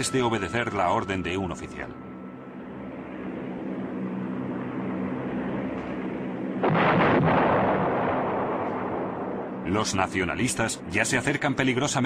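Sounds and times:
aircraft engine drone: 0.0 - 12.0
loud bomb explosion: 6.6 - 9.3.

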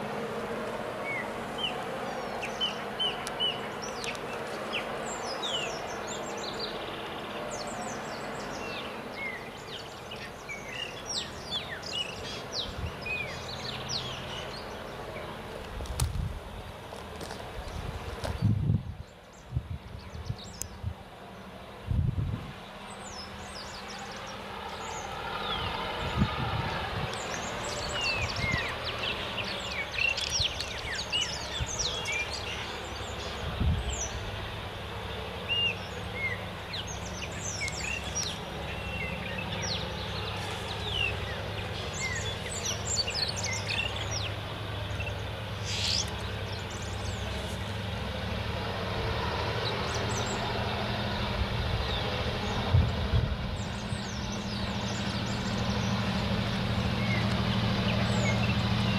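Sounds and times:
diesel locomotive engine running: 0.0 - 58.9
birds chirping: 1.0 - 15.8, 16.4 - 21.9, 22.5 - 58.9.

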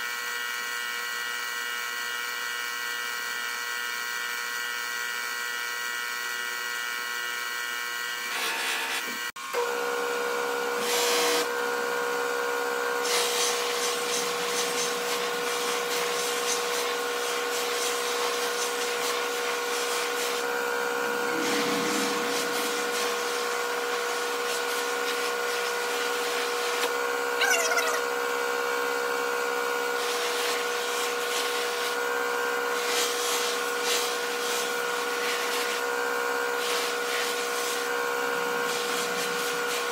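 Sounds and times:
high squeal: 20.6 - 24.7.

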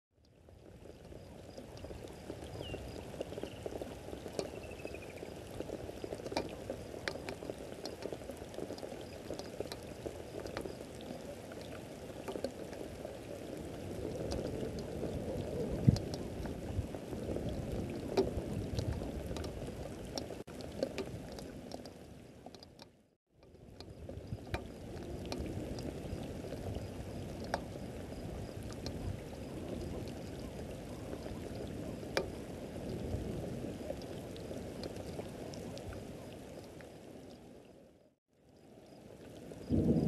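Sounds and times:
drops ticking: 0.2 - 13.2
rain on grass and leaves: 0.2 - 40.0
bird calls: 2.5 - 3.8, 4.4 - 5.4.

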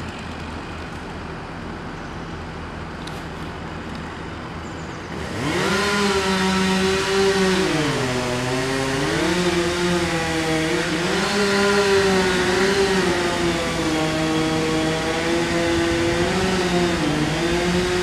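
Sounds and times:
chainsaw revving: 5.1 - 18.0.

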